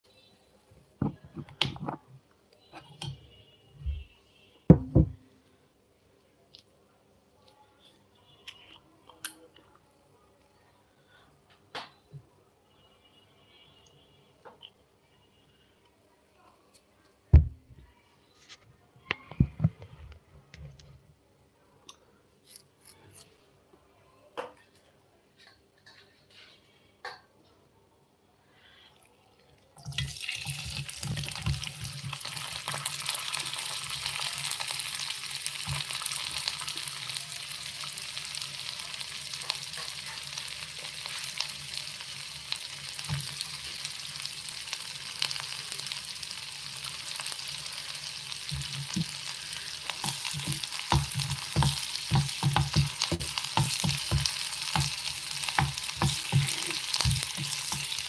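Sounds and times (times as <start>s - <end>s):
spoon knocking and clinking on pot: 50.0s - 58.0s.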